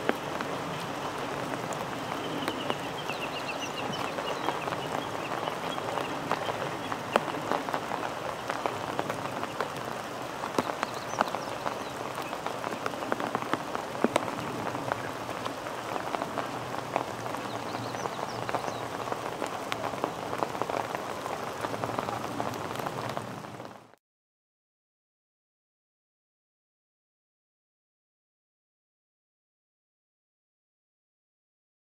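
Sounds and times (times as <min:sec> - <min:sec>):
raindrops ticking and dripping: 0:00.0 - 0:24.0
steady rain falling: 0:00.0 - 0:24.0.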